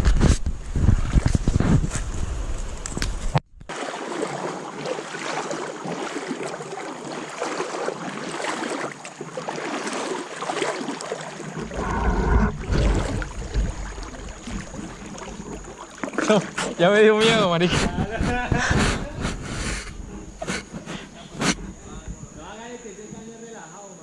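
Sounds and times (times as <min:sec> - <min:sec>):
river water sloshing: 0:03.7 - 0:18.4, 0:19.0 - 0:22.8
low rumble: 0:11.6 - 0:15.8.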